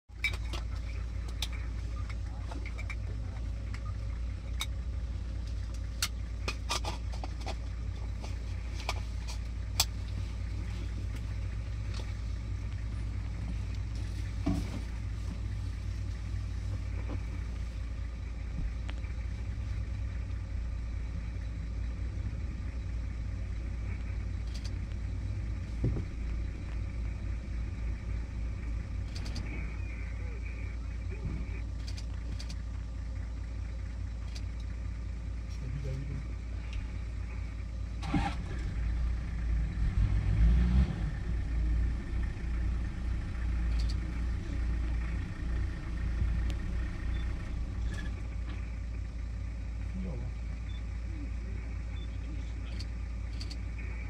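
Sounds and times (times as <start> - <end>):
vehicle engine idling: 0.0 - 54.0
sharp clicks: 24.0 - 25.0, 29.0 - 29.6, 52.7 - 53.7.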